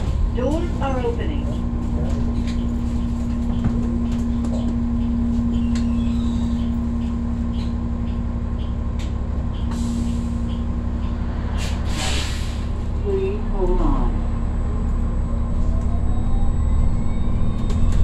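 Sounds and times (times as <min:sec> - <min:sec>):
bus engine rumble: 0:00.0 - 0:18.0
air brake hiss: 0:11.5 - 0:12.8.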